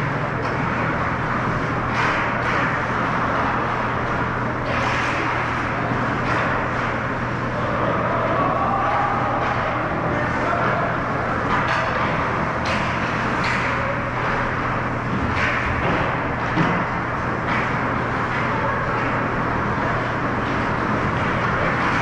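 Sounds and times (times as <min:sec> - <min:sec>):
arena noise: 0:00.0 - 0:22.0
hockey sticks and puck knocks: 0:01.8 - 0:07.0, 0:11.4 - 0:22.0.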